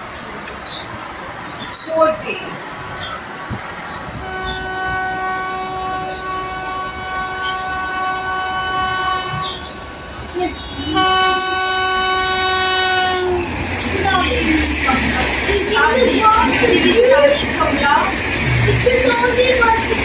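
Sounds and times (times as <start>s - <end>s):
locomotive horn blasts: 4.2s - 13.4s.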